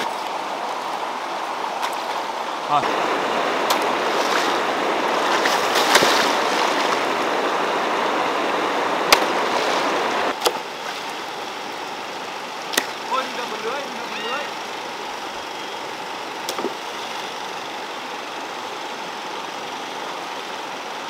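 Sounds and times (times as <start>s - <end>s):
rushing stream water: 0.0s - 21.0s
sharp knocks or splashes: 3.6s - 4.6s, 5.2s - 7.0s, 9.1s - 10.6s.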